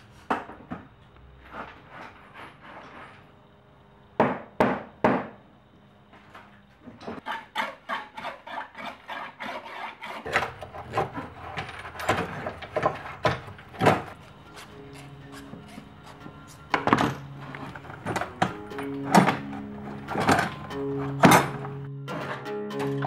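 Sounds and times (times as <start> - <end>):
hand tools knocking and rattling: 10.3 - 21.7.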